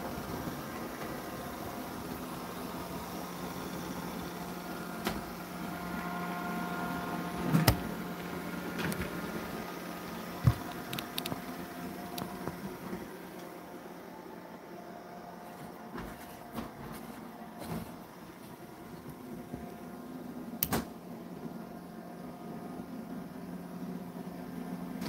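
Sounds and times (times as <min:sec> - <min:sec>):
steady machine hum: 0:00.0 - 0:25.0.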